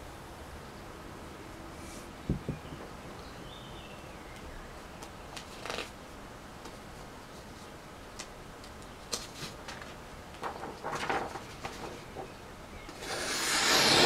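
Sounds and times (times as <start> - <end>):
paper rustling: 5.4 - 5.9, 6.7 - 12.3
knife slicing paper: 13.0 - 14.0.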